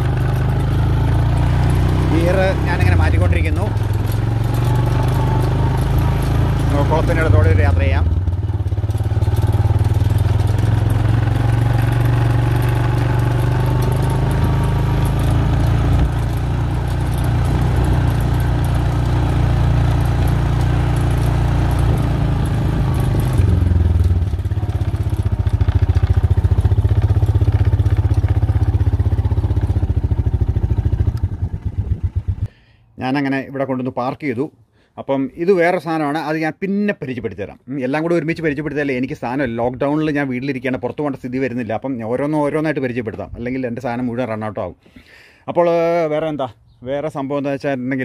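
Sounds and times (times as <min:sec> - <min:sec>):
quad bike engine running: 0:00.0 - 0:32.5.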